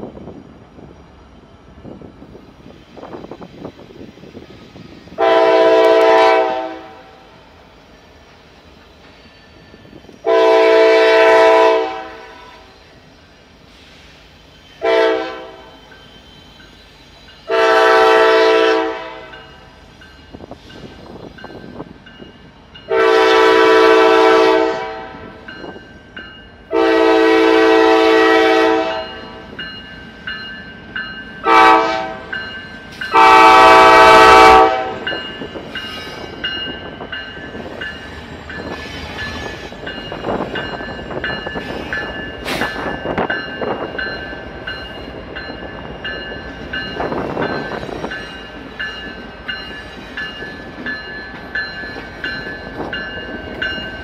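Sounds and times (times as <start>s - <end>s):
locomotive horn: 5.2s - 7.2s, 10.2s - 12.7s, 14.8s - 15.7s, 17.5s - 19.3s, 22.9s - 25.3s, 26.7s - 29.4s, 31.4s - 32.3s, 33.1s - 35.1s
crossing bell ringing: 9.0s - 10.2s, 14.5s - 54.0s.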